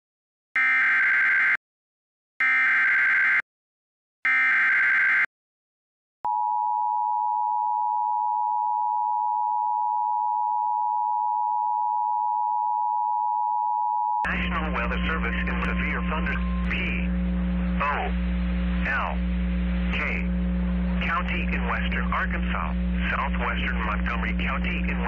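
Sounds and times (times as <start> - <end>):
screeching data tones: 14.3 - 25.0.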